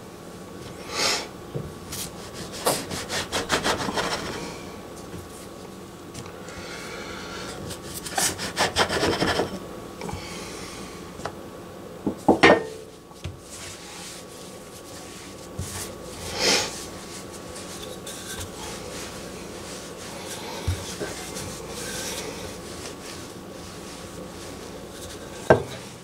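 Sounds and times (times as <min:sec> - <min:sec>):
dough cutter scraping countertop: 0:02.0 - 0:04.6, 0:07.8 - 0:09.6, 0:14.9 - 0:26.0.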